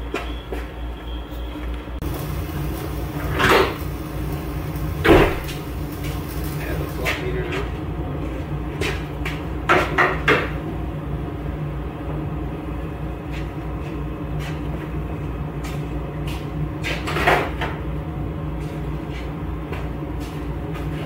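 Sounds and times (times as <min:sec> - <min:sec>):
steady low hum: 0:01.9 - 0:09.7.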